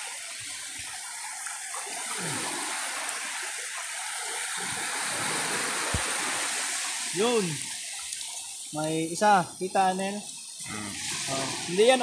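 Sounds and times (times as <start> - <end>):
low water swishes: 0.0 - 9.7, 10.3 - 12.0
steady rushing hiss: 0.0 - 12.0.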